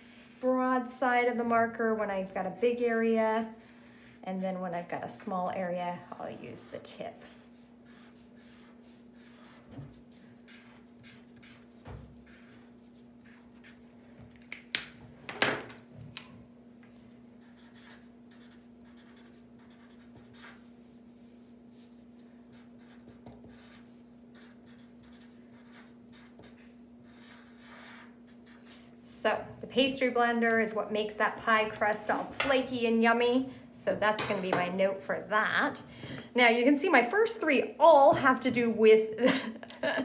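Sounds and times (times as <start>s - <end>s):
steady hum: 0.0s - 40.0s
markers scratching on paper: 6.7s - 14.0s, 17.4s - 20.7s, 21.4s - 28.7s.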